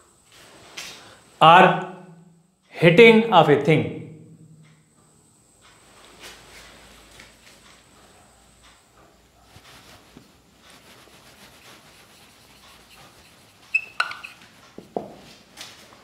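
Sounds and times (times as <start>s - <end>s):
marker scratching on whiteboard: 10.8s - 15.0s
marker tip squeaks and taps: 13.6s - 14.5s.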